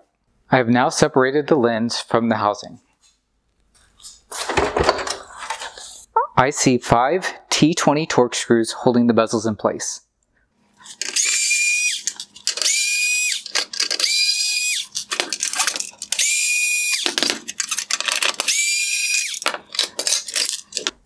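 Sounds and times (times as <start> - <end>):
power driver whirring: 10.8 - 20.9.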